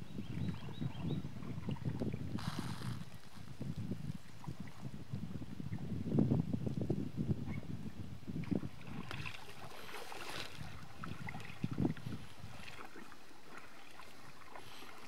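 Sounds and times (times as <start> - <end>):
water splashing along canoe hull: 0.3 - 5.0, 8.4 - 15.0.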